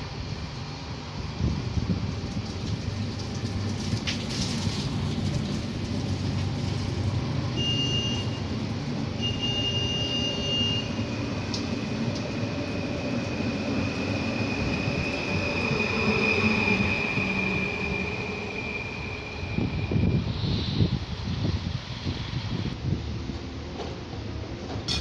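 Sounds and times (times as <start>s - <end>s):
train wheels rumbling on rail: 0.0s - 25.0s.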